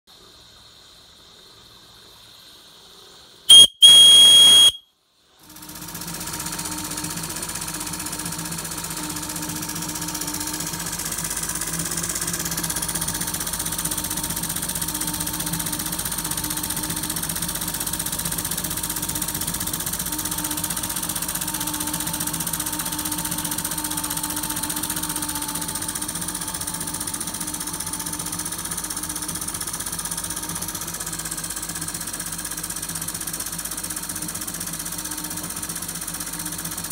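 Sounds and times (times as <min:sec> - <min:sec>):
model steam engine running: 0:00.1 - 0:36.9
short loud whistle: 0:03.5 - 0:04.9.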